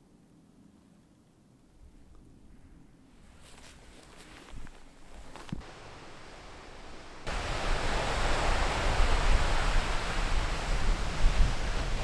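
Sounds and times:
faint forest ambience: 0.0s - 11.0s
strong wind buffeting microphone: 5.5s - 12.0s.

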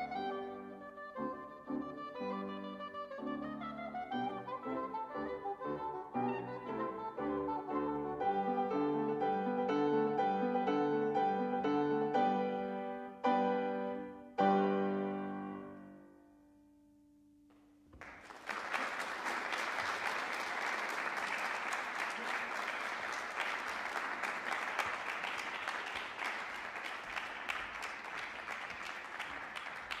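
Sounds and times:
piano chord ringing: 11.4s - 17.4s
audience applause: 18.0s - 30.0s.

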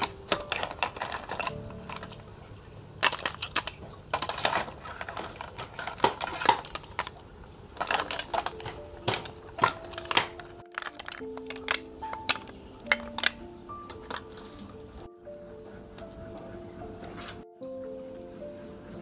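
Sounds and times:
snail shells clattering on plate: 0.0s - 15.0s.

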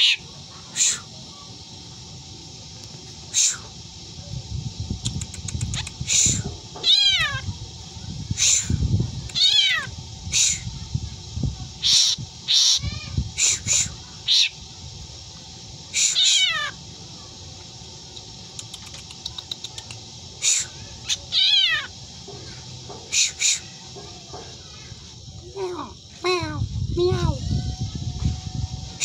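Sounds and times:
bird making meow-like calls: 6.1s - 7.5s, 9.3s - 9.9s, 11.8s - 13.7s, 16.0s - 16.8s, 20.4s - 21.9s
bird harsh screeches: 11.8s - 14.6s.

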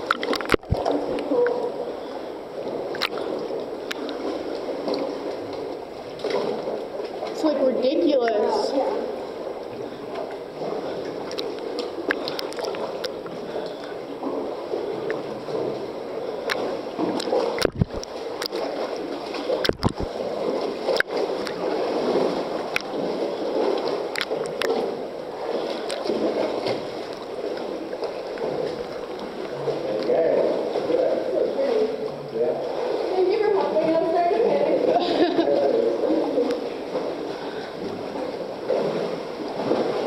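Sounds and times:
sea water sloshing in a cave: 0.0s - 40.0s
sharp splashes: 16.4s - 40.0s.

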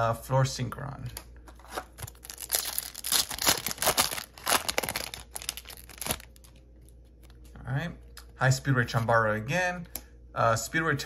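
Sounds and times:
foil wrapper crinkling and ripping: 1.7s - 6.6s.

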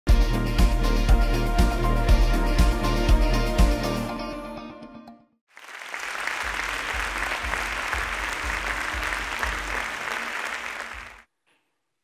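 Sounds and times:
audience applauding: 5.5s - 11.2s.

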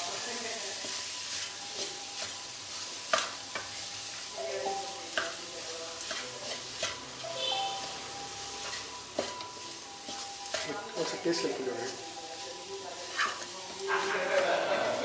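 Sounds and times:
rice sizzling in a wok: 0.0s - 15.0s
spatula scraping a pan: 6.0s - 7.1s, 8.6s - 12.4s, 13.0s - 15.0s.

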